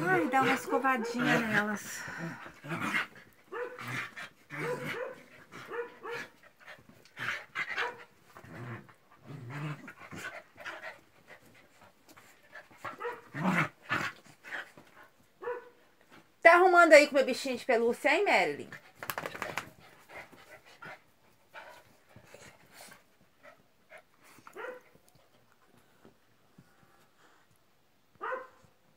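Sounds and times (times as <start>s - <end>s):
dogs panting: 0.0s - 13.2s, 18.7s - 27.4s
dogs growling and yipping: 0.0s - 15.6s.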